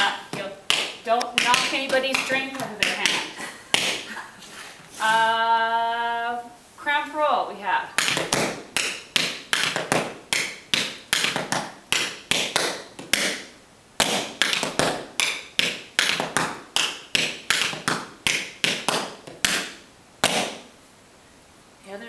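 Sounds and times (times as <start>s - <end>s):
tap shoes on hard floor: 0.3s - 4.1s, 8.0s - 20.6s.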